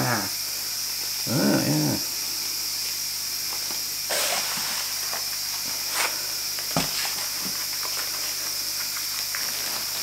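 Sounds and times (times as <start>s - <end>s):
steady background hiss: 0.0s - 10.0s
paper rustling: 4.1s - 10.0s.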